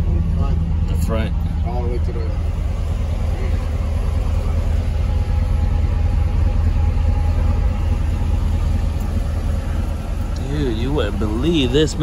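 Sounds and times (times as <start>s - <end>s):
truck engine idling: 0.0s - 12.0s.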